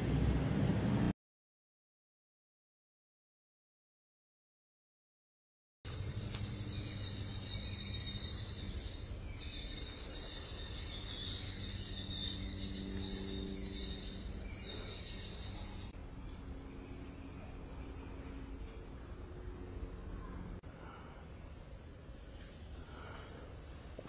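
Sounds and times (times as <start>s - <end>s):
insect chorus buzzing: 5.9s - 24.0s.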